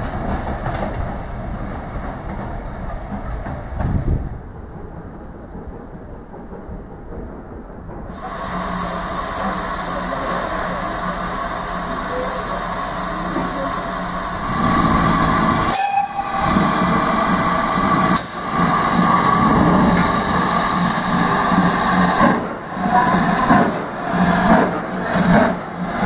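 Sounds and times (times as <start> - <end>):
steam locomotive hissing: 8.0 - 26.0.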